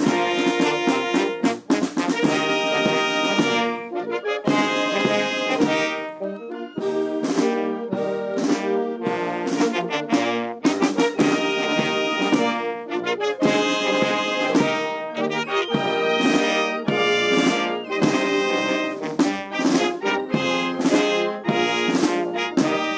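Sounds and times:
brass band playing anthem: 0:00.0 - 0:22.9
drum strokes: 0:00.0 - 0:22.9.

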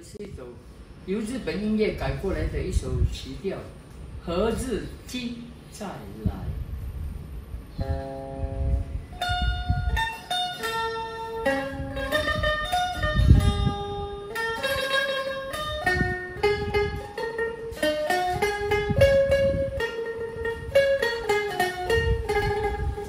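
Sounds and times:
plucked metal-string melody: 0:07.7 - 0:23.0.

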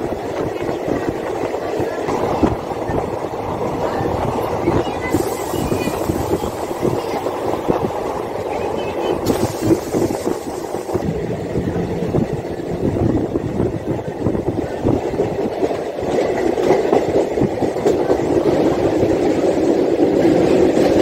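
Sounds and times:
train rumbling and rattling on track: 0:00.0 - 0:21.0
wind rushing past: 0:02.2 - 0:21.0.

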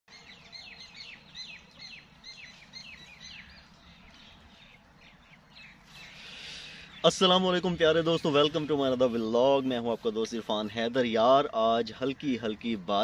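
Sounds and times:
songbird chirping: 0:00.1 - 0:13.0.

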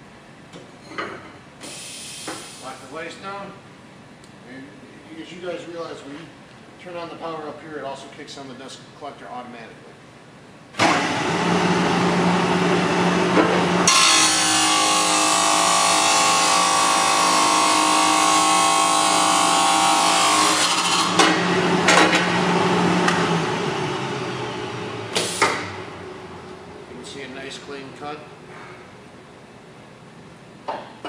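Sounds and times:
cut-off saw motor running: 0:13.7 - 0:24.2
abrasive wheel grinding metal: 0:13.9 - 0:21.2.

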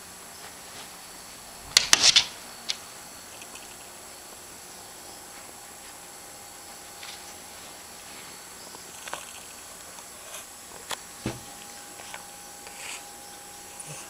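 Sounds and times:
faint hum: 0:00.0 - 0:14.0
heavy thump: 0:11.2 - 0:11.6.

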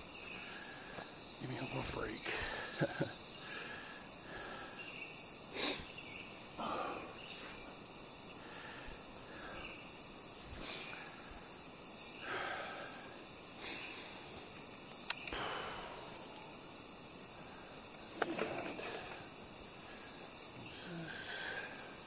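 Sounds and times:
background hiss: 0:00.0 - 0:22.0
man breathing and sniffing: 0:03.4 - 0:11.6, 0:12.2 - 0:14.6, 0:15.2 - 0:22.0
sharp click: 0:14.9 - 0:15.4.

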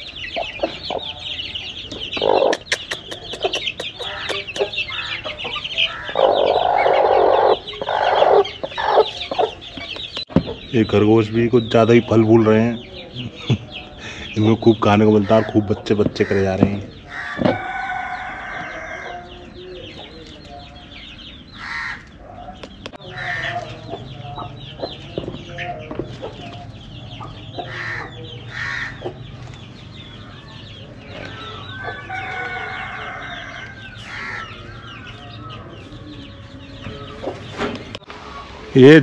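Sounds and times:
chickens clucking: 0:00.0 - 0:39.0
rooster crowing: 0:17.1 - 0:19.4, 0:31.4 - 0:34.7.

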